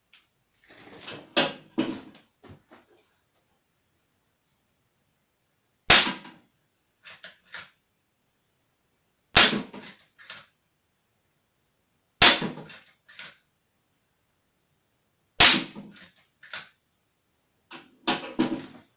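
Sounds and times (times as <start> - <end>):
air rifle shots: 5.9 - 6.4, 9.4 - 9.9, 12.2 - 12.8, 15.4 - 16.0.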